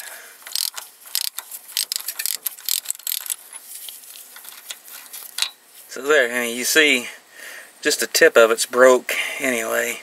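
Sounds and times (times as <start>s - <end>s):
hand ratchet clicking: 0.4s - 3.5s.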